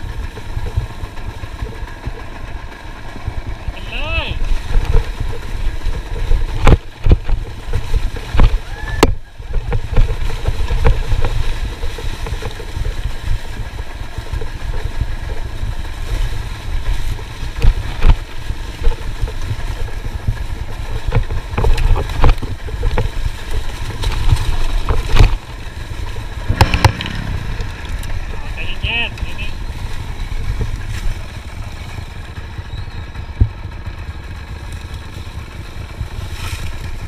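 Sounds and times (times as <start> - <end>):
wind rumble on microphone: 0.0 - 33.9
dirt bike engine at low revs: 0.0 - 37.0.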